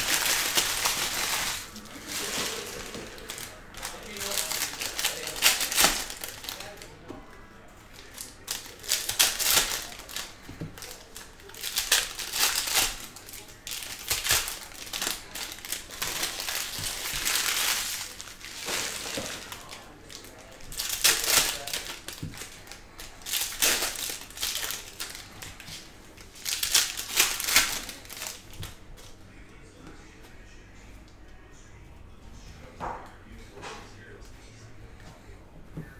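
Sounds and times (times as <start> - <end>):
foil wrappers crinkling and tearing: 0.0 - 6.9, 7.9 - 29.2.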